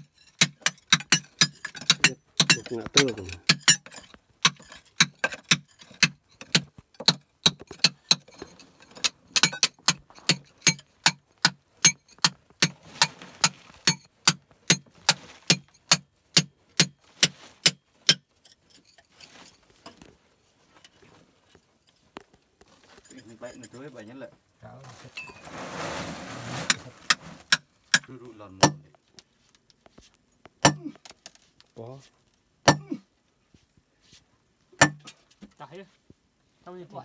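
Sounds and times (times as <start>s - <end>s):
sharp knocks: 28.0s - 28.9s.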